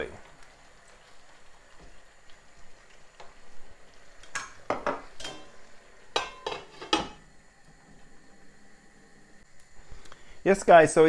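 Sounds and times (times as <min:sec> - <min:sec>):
faint sauce sizzle: 0:00.0 - 0:11.0
glass lid clinking onto pan: 0:04.4 - 0:05.5.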